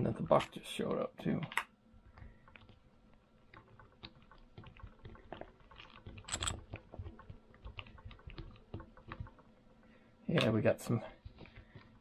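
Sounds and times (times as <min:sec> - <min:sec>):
screwdriver and metal parts clicking: 0:05.3 - 0:07.1.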